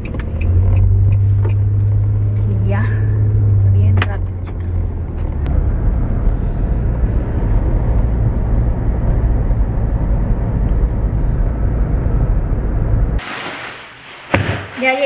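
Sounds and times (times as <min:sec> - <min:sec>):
car engine and road noise: 0:00.0 - 0:14.6.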